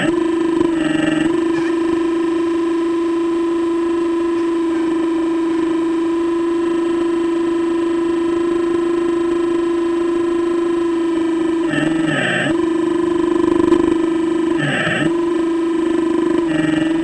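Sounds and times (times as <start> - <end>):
hydraulic pump whining: 0.0 - 6.3.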